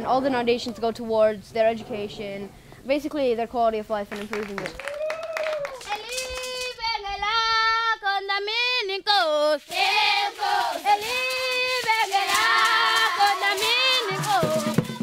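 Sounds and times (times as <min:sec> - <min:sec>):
children's group singing: 0:09.4 - 0:15.0.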